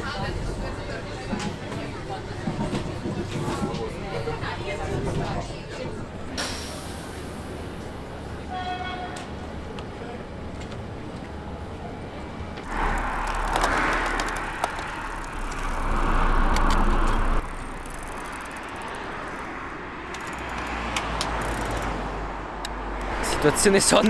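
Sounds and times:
bicycle tyre and air noise: 12.6 - 19.5.

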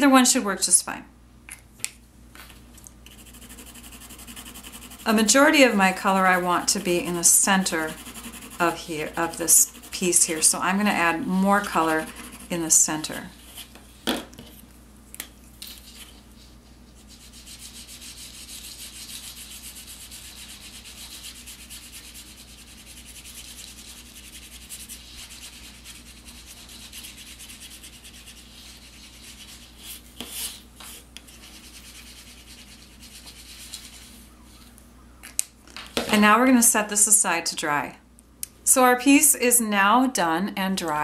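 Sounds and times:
brush scrubbing on paper: 3.1 - 13.7, 16.9 - 30.7, 31.3 - 34.3.

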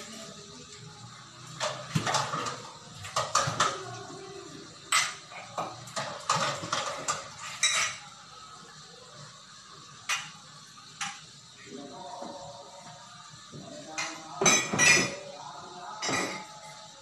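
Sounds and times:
dishes clattering in sink: 1.5 - 4.0, 4.9 - 8.1, 10.0 - 10.4, 11.0 - 11.2, 13.9 - 15.3, 16.0 - 16.6.

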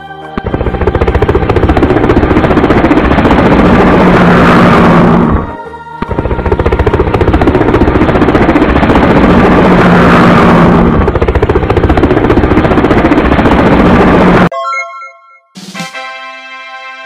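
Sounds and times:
helicopter rotor chopping: 0.0 - 14.5.

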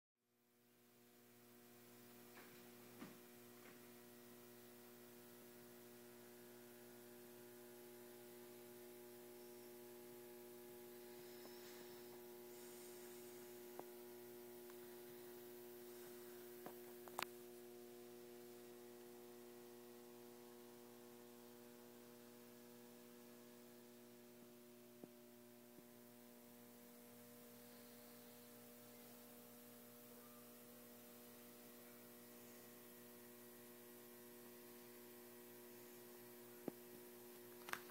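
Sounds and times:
steady electrical hum: 0.3 - 37.9.

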